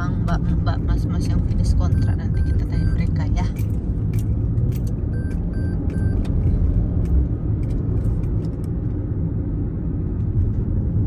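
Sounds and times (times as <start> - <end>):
car road and engine rumble: 0.0 - 11.0
short high beeps: 1.9 - 3.2, 5.1 - 6.2.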